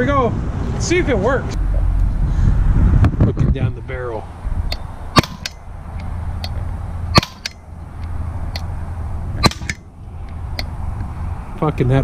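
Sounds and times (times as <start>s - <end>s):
bb gun sharp pops: 4.7s - 5.6s, 6.4s - 7.6s, 9.4s - 9.8s.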